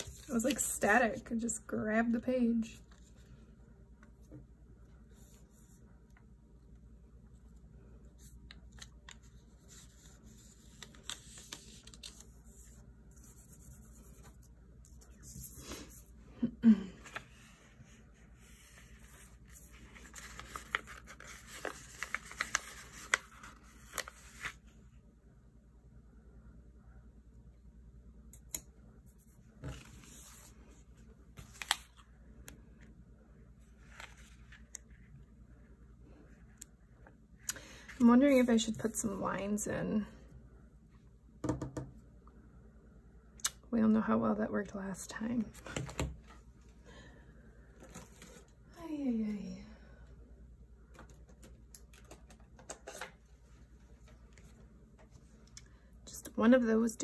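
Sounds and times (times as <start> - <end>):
paper rustling: 8.2 - 12.8, 18.4 - 24.7, 33.8 - 34.8.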